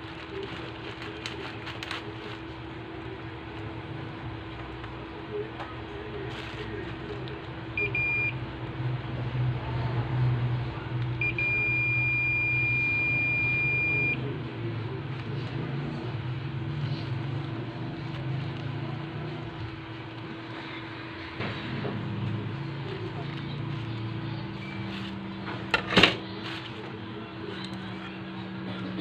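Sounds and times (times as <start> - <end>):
low background hum: 0.0 - 29.0
multimeter continuity beeps: 7.7 - 8.4, 11.2 - 14.3.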